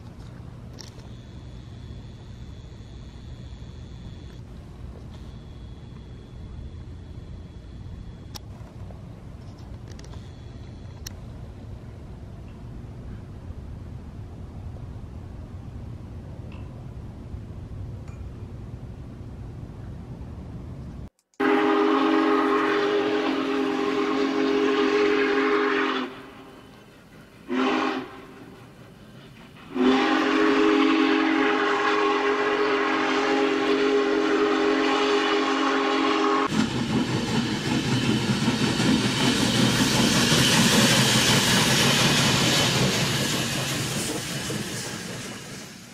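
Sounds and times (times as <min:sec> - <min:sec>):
steam locomotive whistle: 0:21.4 - 0:28.9, 0:29.6 - 0:36.6.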